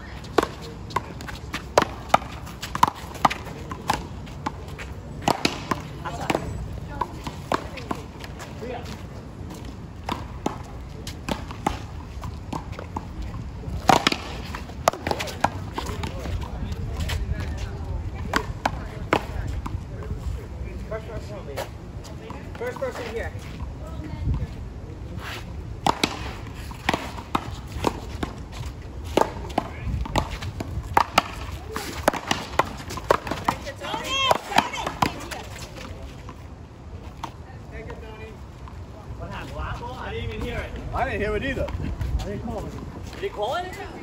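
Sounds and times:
ball tapping on concrete: 0.2 - 4.6, 29.1 - 36.0
paddle smacking ball: 13.8 - 15.6, 25.8 - 28.4, 29.1 - 35.4.

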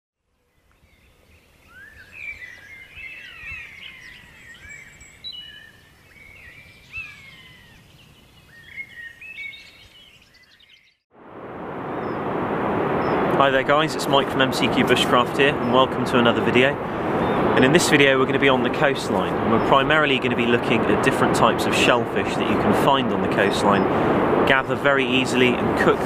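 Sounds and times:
songbirds chirping and whistling: 0.4 - 11.0, 14.1 - 23.9.

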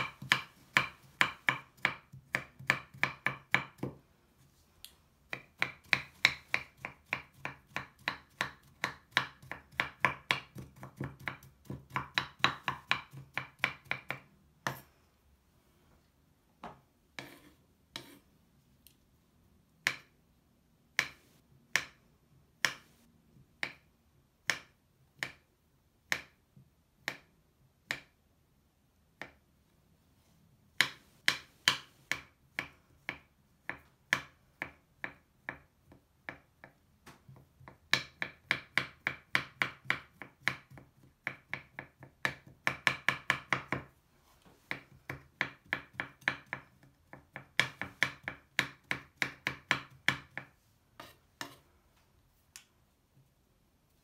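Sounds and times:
knife chopping on wooden board: 0.0 - 4.0, 5.3 - 14.8, 16.6 - 18.2, 21.0 - 22.0, 44.7 - 51.6.

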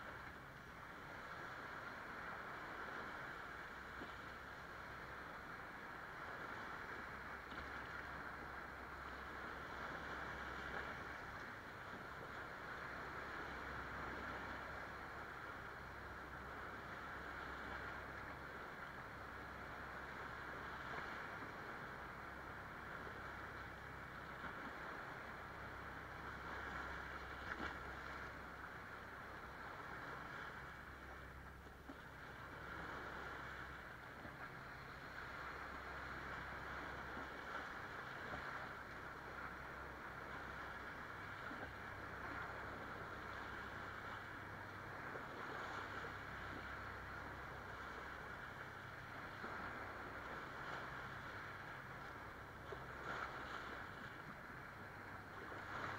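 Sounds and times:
waves washing over sand: 0.0 - 55.9.

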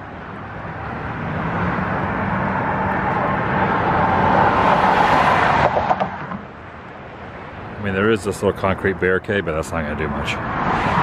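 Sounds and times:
vehicle rushing past: 0.6 - 6.6, 10.1 - 11.0.

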